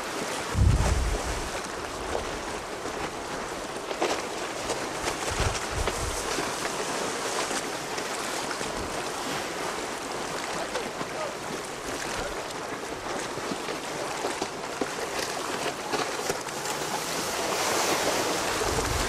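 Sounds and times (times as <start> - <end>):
waves breaking: 0.0 - 19.0
wind rushing: 0.5 - 1.5
wind buffeting microphone: 0.5 - 2.4, 5.1 - 6.4, 18.0 - 19.0.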